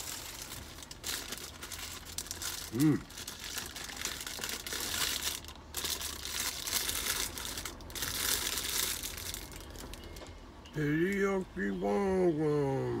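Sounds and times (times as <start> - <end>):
paper wrapper crinkling: 0.0 - 10.1.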